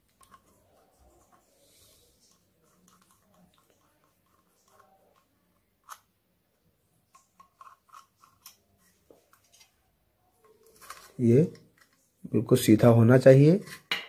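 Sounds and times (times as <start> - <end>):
aluminium can clicking and crackling: 7.1 - 8.6.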